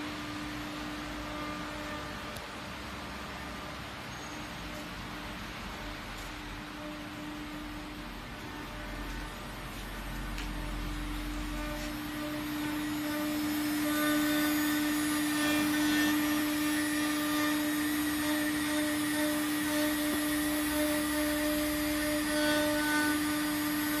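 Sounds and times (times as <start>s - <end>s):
milling spindle whine: 0.0s - 24.0s
cutter milling a board: 10.2s - 24.0s.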